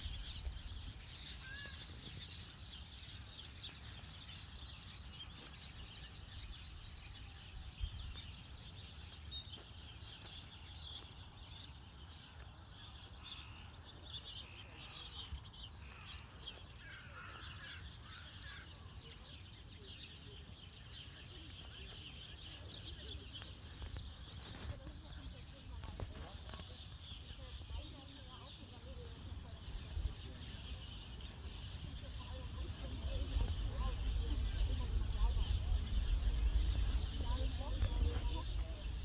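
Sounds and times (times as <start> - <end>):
distant birds chirping: 0.0 - 39.0
low steady rumble: 32.5 - 39.0.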